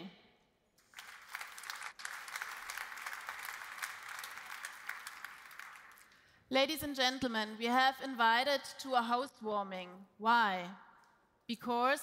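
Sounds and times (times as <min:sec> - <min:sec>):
audience applauding: 0:00.8 - 0:06.2.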